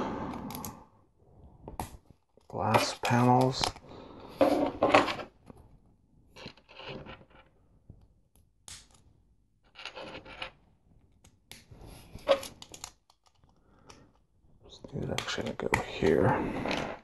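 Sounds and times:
plastic bricks clicking and tapping: 12.3 - 14.0.

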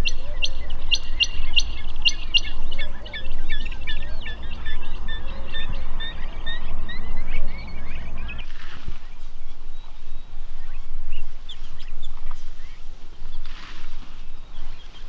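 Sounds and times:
guineafowl chirping: 0.0 - 15.0
low rumble: 0.0 - 15.0.

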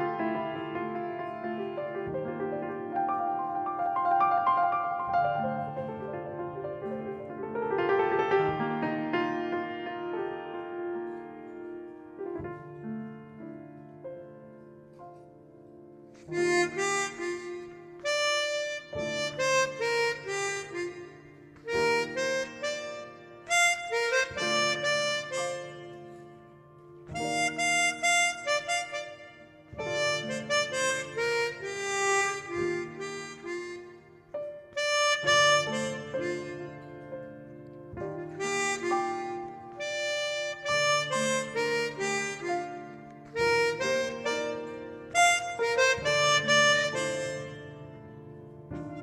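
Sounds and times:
harmonica melody: 0.0 - 12.5, 16.1 - 49.0
soft piano chords: 0.0 - 49.0.

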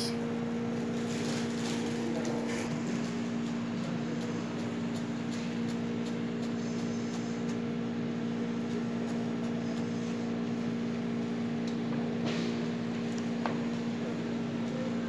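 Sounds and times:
kitchen equipment hum: 0.0 - 15.0.

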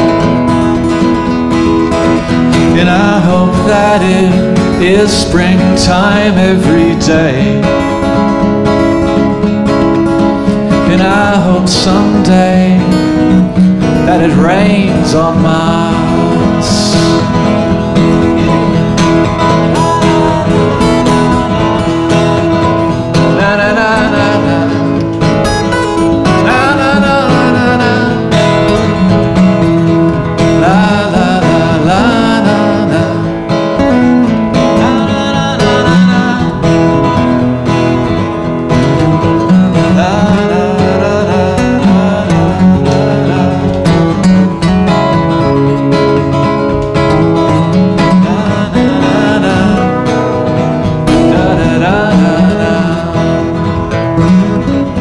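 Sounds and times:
acoustic guitars playing: 0.0 - 55.0.

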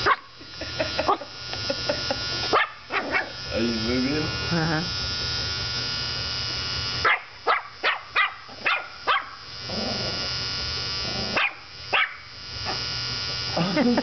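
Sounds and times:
electric beard trimmer buzzing: 0.0 - 14.0
small dog yapping: 2.5 - 3.3, 7.0 - 9.4, 11.4 - 12.8.

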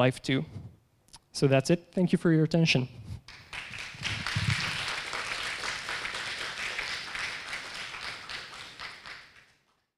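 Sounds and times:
audience applauding: 3.3 - 9.6.

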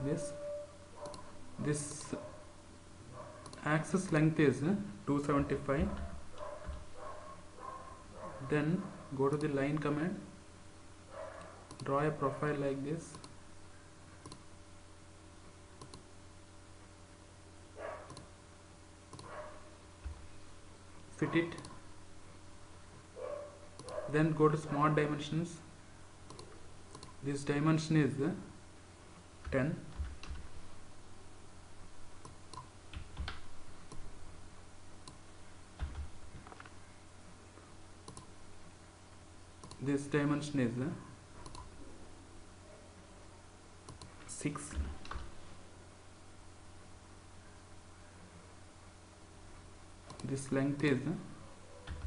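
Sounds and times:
low steady hum: 0.0 - 52.0
computer mouse clicking: 1.0 - 1.2, 3.4 - 4.2, 11.7 - 11.9, 13.1 - 13.4, 14.2 - 14.5, 15.8 - 16.1, 18.1 - 18.3, 19.1 - 19.3, 21.5 - 21.8, 23.8 - 24.0, 26.3 - 27.2, 32.2 - 34.1, 38.0 - 38.3, 39.6 - 39.9, 41.4 - 41.7, 43.9 - 44.1, 50.1 - 50.3
mouse and keyboard clicks: 11.7 - 11.9.

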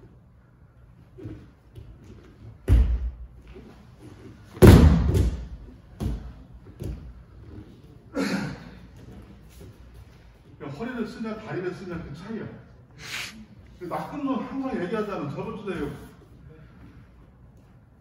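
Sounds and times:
body thudding onto mat: 4.5 - 7.0.

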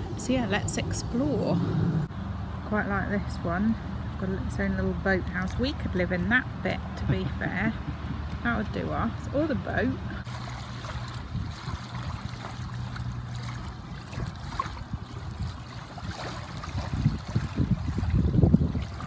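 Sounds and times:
low rumble: 0.0 - 3.2
river water lapping: 0.0 - 19.0.

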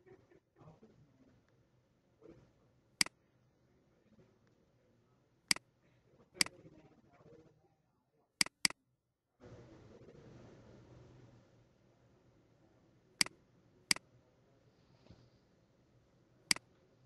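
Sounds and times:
mouse button clicking: 8.4 - 8.8.

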